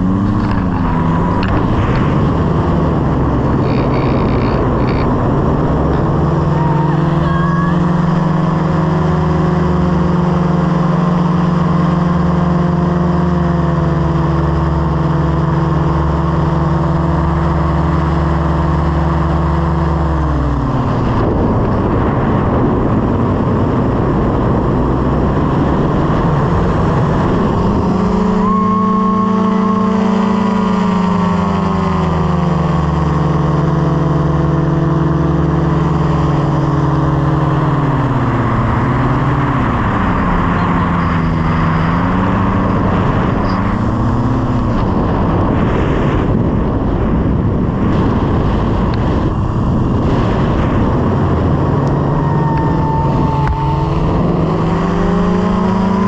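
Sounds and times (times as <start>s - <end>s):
wind rush: 0.0s - 9.4s, 20.0s - 32.4s, 35.8s - 56.0s
propeller aircraft engine: 0.0s - 56.0s.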